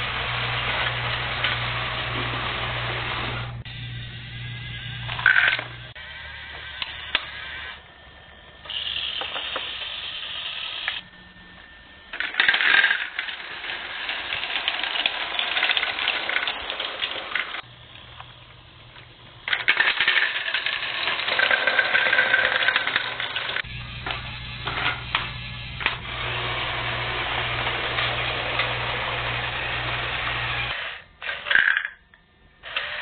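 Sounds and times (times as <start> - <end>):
toy trains clicking and clattering: 5.1 - 5.8, 8.6 - 11.0, 12.1 - 18.3, 19.4 - 32.1.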